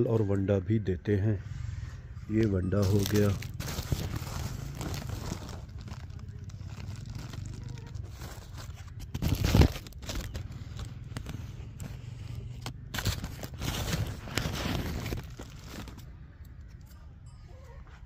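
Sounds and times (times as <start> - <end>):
low rumble: 1.5 - 15.8
rustling crackling and scraping: 1.9 - 18.0.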